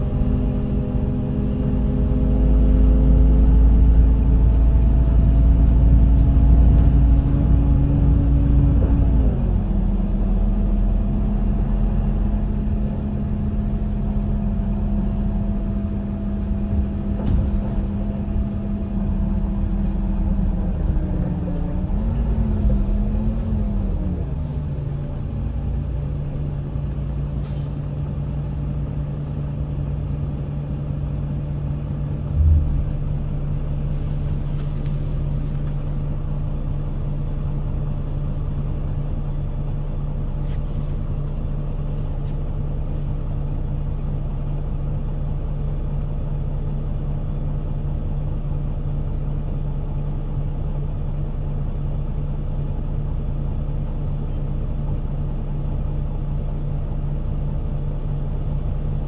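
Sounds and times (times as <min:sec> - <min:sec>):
bus diesel engine running: 0:00.0 - 0:59.0
low thump: 0:17.1 - 0:18.0, 0:32.3 - 0:33.2.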